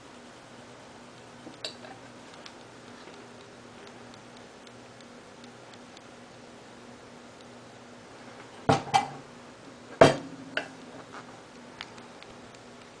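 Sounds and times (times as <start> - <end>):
fan knocking on wooden desk: 8.7 - 9.2, 10.0 - 10.3.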